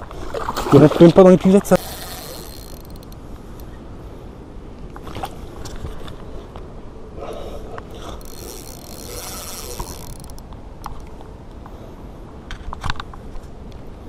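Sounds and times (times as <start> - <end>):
rod and reel clicks: 1.6 - 3.7, 7.8 - 11.1
fishing reel gears whirring: 1.7 - 3.2, 7.9 - 10.5.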